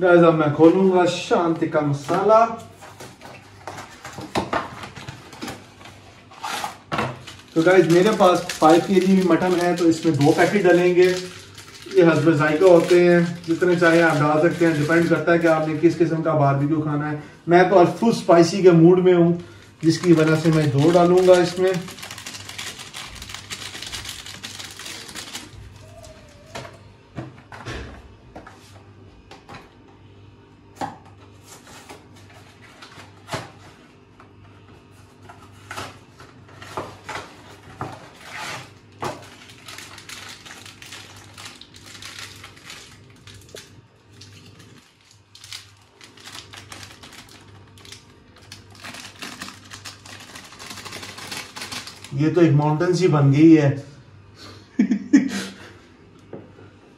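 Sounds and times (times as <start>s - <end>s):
packaging crinkling and rustling: 2.0s - 16.0s, 19.5s - 26.8s, 35.1s - 52.3s.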